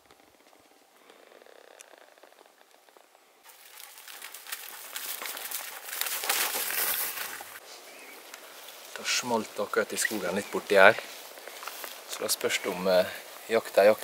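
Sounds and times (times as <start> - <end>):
footsteps through dry undergrowth: 3.4 - 14.0.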